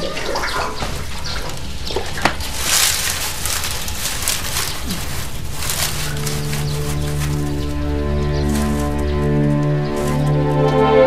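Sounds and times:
noisy hiss: 0:00.0 - 0:11.0
soft background music: 0:05.6 - 0:11.0.

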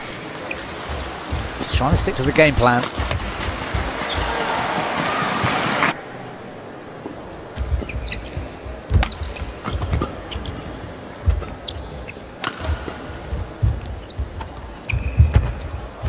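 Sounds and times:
racket striking shuttlecock: 0:02.8 - 0:03.6, 0:11.3 - 0:13.1
shoe squeaks: 0:07.6 - 0:12.5, 0:13.6 - 0:16.0.

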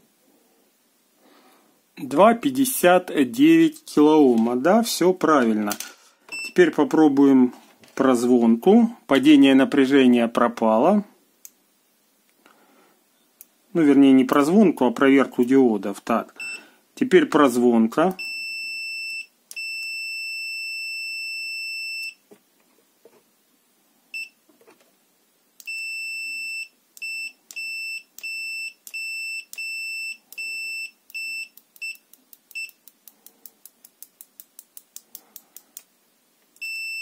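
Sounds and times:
multimeter beeping: 0:25.6 - 0:32.8, 0:36.6 - 0:37.0.

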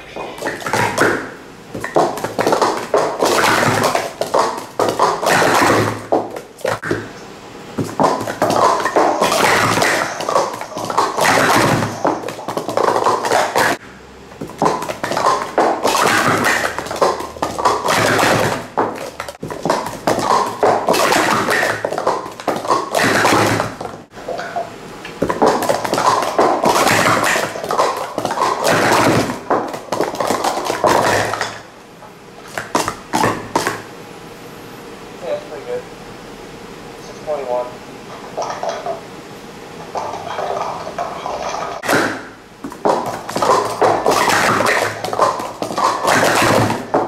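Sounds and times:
plastic cups clattering: 0:00.1 - 0:07.1, 0:07.8 - 0:13.8, 0:14.4 - 0:31.6, 0:39.9 - 0:47.0.

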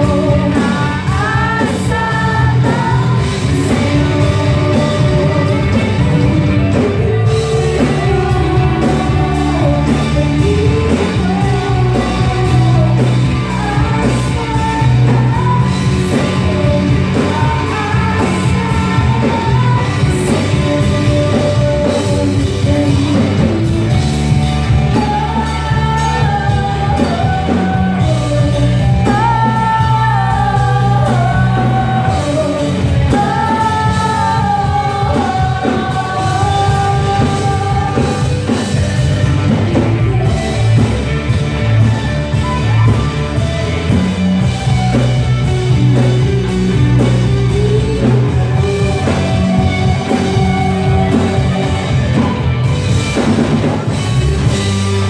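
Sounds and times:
woman singing lead vocal: 0:00.0 - 0:43.4, 0:44.0 - 0:55.0
rock band playing: 0:00.0 - 0:55.0.

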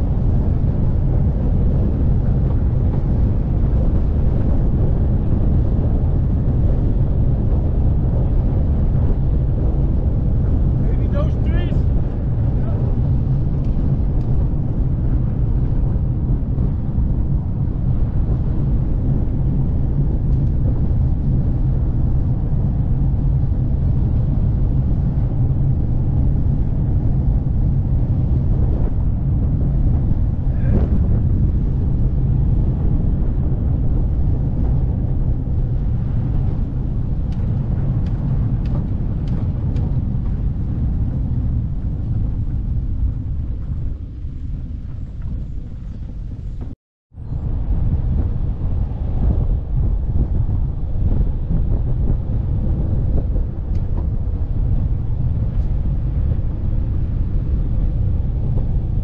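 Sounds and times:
tyre and road noise: 0:00.0 - 0:46.8
wind on microphone: 0:00.0 - 0:59.0.

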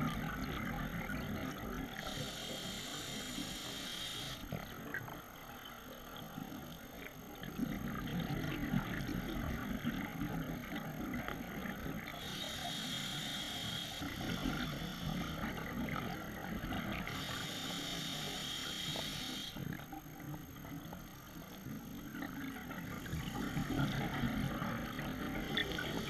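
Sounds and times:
regulator inhale hiss: 0:02.0 - 0:04.6, 0:12.1 - 0:15.4, 0:17.0 - 0:19.6.

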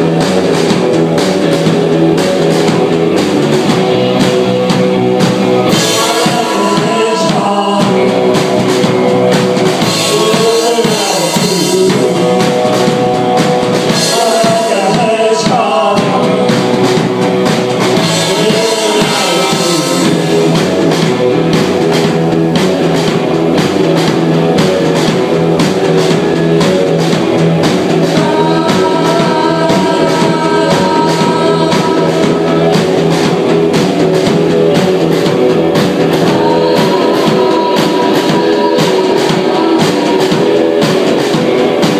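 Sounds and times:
person singing: 0:00.0 - 0:41.9
rock band playing: 0:00.0 - 0:41.9.

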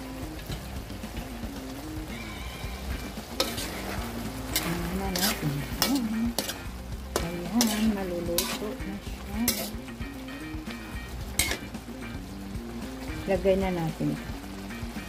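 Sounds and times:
sauce sizzling in a wok: 0:00.0 - 0:15.0
spatula scraping a pan: 0:02.2 - 0:09.9, 0:11.3 - 0:11.7.

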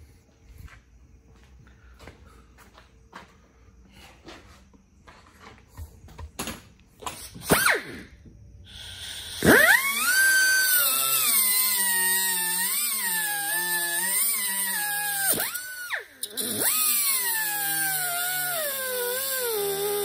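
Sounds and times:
cut-off wheel cutting steel: 0:08.7 - 0:20.0.

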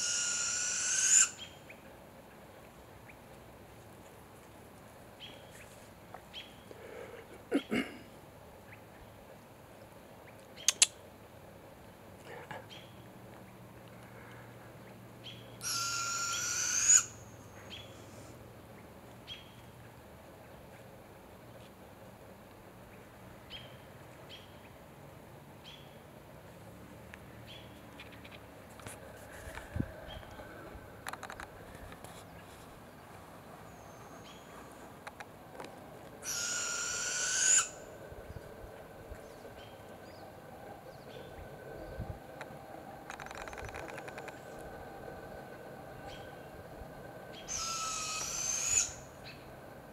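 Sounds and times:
owl raspy hissing screech: 0:00.0 - 0:01.4, 0:15.6 - 0:17.2, 0:36.2 - 0:37.9, 0:47.3 - 0:49.1.

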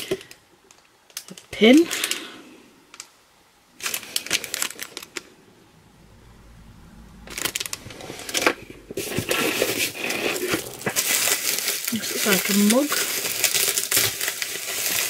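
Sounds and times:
packaging crinkling and rustling: 0:03.8 - 0:05.3, 0:07.4 - 0:15.0.

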